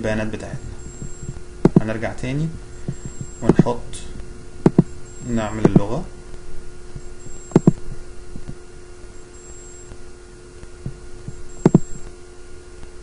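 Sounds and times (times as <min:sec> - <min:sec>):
electrical hum: 0:00.0 - 0:13.0
computer mouse clicks: 0:07.5 - 0:07.8, 0:11.3 - 0:11.9.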